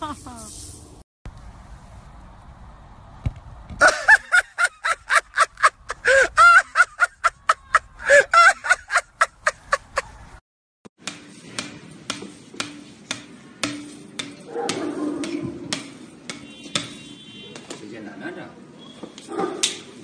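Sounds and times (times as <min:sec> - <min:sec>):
person laughing hard: 0:00.0 - 0:00.5, 0:03.8 - 0:10.2.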